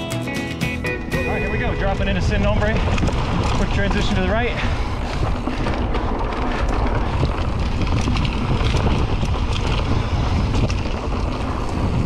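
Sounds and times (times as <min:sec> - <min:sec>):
bike rolling on dirt: 0:01.3 - 0:12.0
wind buffeting microphone: 0:01.3 - 0:12.0
sharp ticks and clatter: 0:02.3 - 0:12.0.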